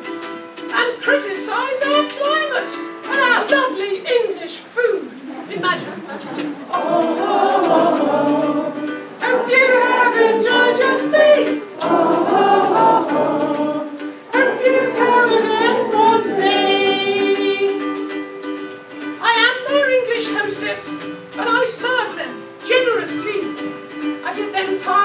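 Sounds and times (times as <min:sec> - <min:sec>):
ukulele strumming: 0:00.0 - 0:04.5, 0:05.7 - 0:25.0
person singing: 0:06.7 - 0:18.4.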